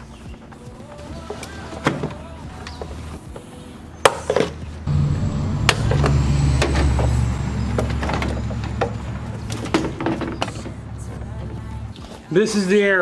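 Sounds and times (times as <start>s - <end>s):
engine running rumble: 4.7s - 12.0s.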